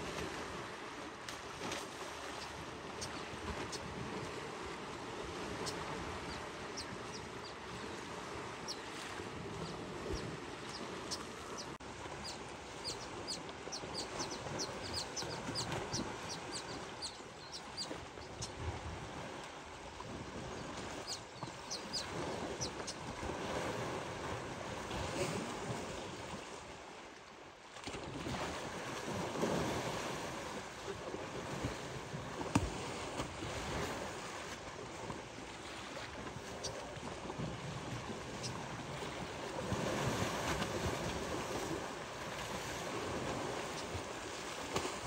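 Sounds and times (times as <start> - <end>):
birds chirping: 9.6 - 18.5, 20.5 - 23.0
water sloshing and splashing: 27.6 - 45.0.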